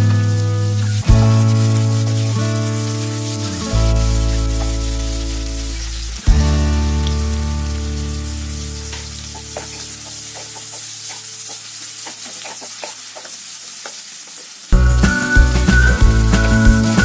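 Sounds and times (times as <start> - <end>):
onions sizzling in hot oil: 0.0 - 17.0
loud background music: 14.8 - 17.0.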